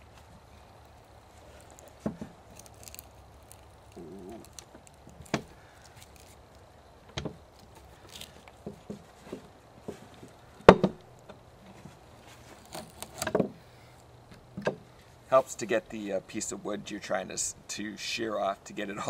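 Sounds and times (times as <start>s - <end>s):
loppers cracking through branches: 0.0s - 8.6s.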